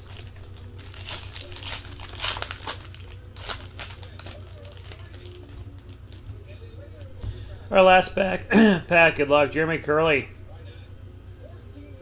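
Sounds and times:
foil wrapper tearing and crinkling: 0:00.0 - 0:06.2
cards rustling: 0:00.0 - 0:06.4.

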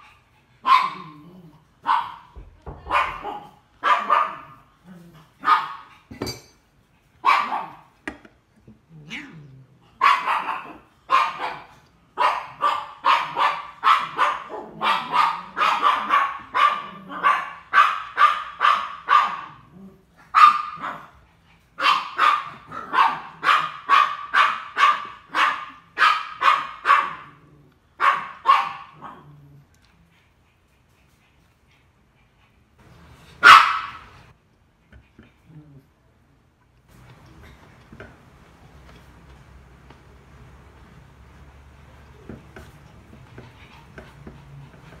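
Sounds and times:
dog barking: 0:00.6 - 0:01.2, 0:01.8 - 0:04.6, 0:05.4 - 0:05.9, 0:07.2 - 0:07.9, 0:10.0 - 0:19.7, 0:20.3 - 0:21.2, 0:21.8 - 0:27.4, 0:28.0 - 0:29.3, 0:33.4 - 0:34.2.

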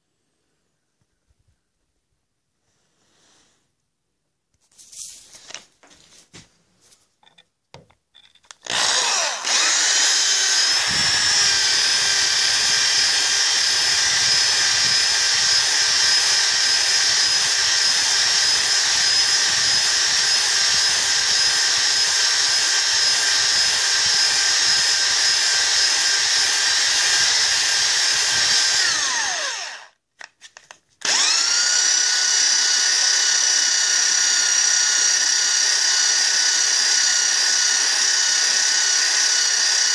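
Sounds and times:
electric drill whining: 0:08.4 - 0:39.9.

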